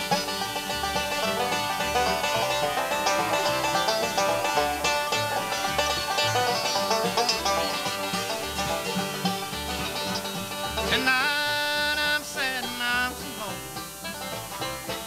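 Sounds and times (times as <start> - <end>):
acoustic guitar: 0.0 - 15.0
banjo rolls: 0.0 - 15.0
mandolin: 0.0 - 15.0
upright bass: 0.0 - 15.0.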